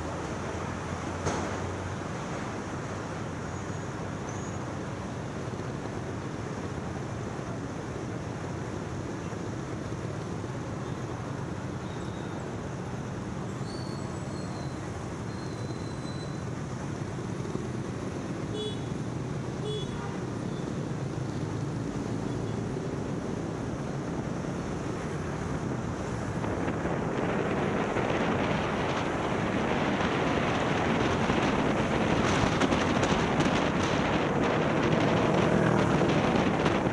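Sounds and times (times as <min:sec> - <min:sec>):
city traffic noise: 0:00.0 - 0:36.9
wind rushing over microphone: 0:20.9 - 0:36.9.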